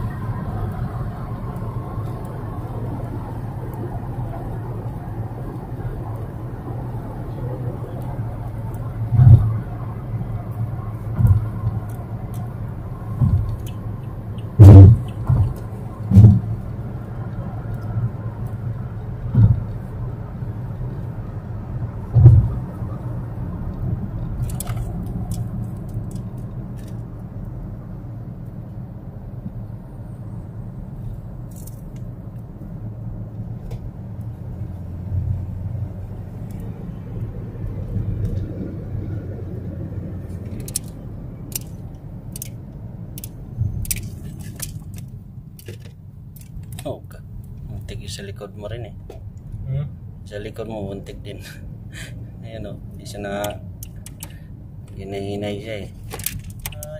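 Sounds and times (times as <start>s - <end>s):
car road and engine rumble: 0.0s - 56.9s
short dull thumps: 13.1s - 13.8s, 14.4s - 16.5s, 19.2s - 19.8s, 22.1s - 22.6s.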